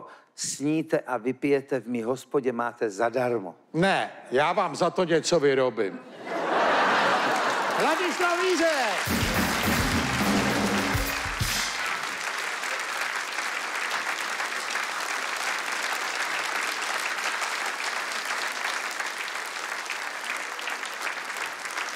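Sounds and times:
audience applauding: 6.4 - 21.9
live band music: 8.9 - 12.2.

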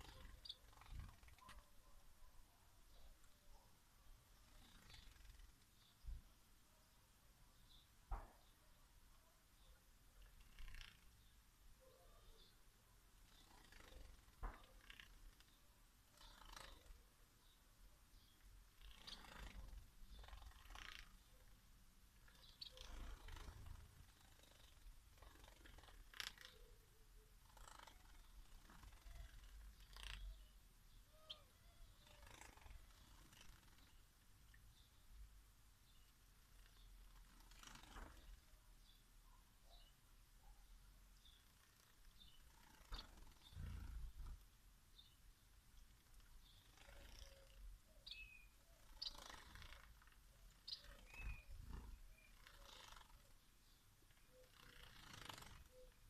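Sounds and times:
wing flutters: 0.0 - 1.8, 4.4 - 5.8, 10.2 - 11.3, 13.2 - 17.0, 18.7 - 21.6, 22.2 - 26.8, 27.4 - 30.5, 31.2 - 34.6, 35.9 - 38.6, 41.2 - 44.5, 45.9 - 47.7, 48.8 - 53.5, 54.1 - 56.0.

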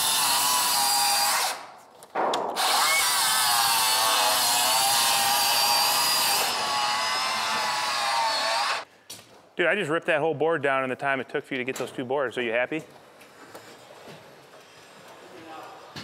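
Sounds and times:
circular saw cutting wood: 0.0 - 1.6, 2.6 - 8.9.

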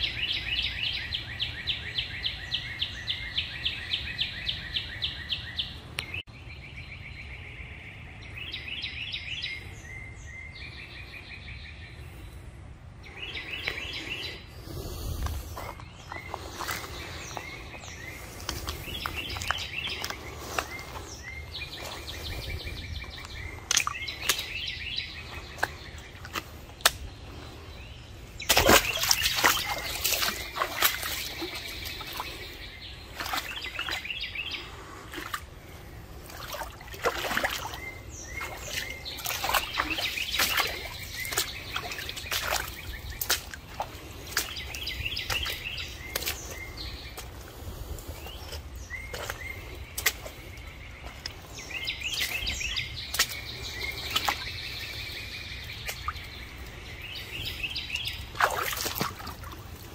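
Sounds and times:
small birds chirping: 0.0 - 59.9
footsteps splashing through a creek: 13.5 - 27.6, 28.4 - 59.9.

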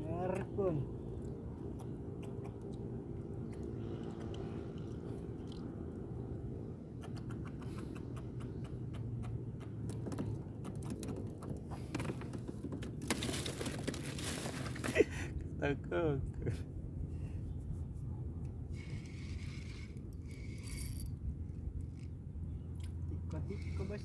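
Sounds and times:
steady low hum: 0.0 - 12.8, 14.4 - 24.0
fishing line clicks and rattles: 18.8 - 22.2.

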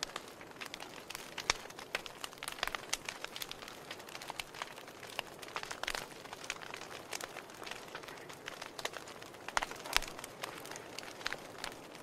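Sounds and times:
fire crackling and popping: 0.0 - 12.0
fire soft hiss: 0.0 - 12.0.

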